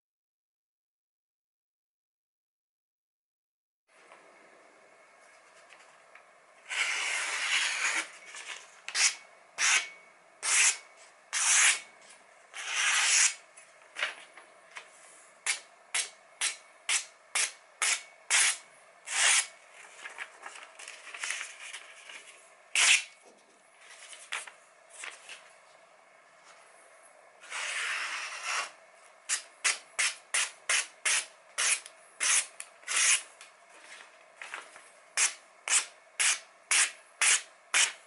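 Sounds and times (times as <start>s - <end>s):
cleaver slicing paper: 11.4s - 11.8s, 29.3s - 33.3s, 35.2s - 38.0s
paper rustling: 19.7s - 22.4s, 23.8s - 25.5s, 33.7s - 34.9s.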